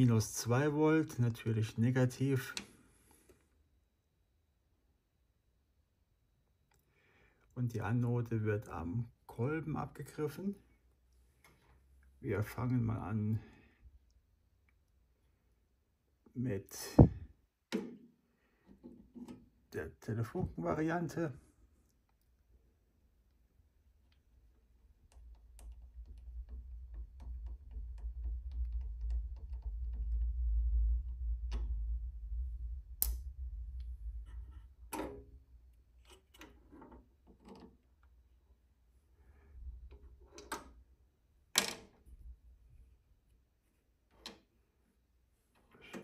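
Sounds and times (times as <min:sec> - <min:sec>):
sharp clicks and knocks: 0:24.8 - 0:32.1, 0:44.1 - 0:44.6
low handling rumble: 0:26.6 - 0:34.9.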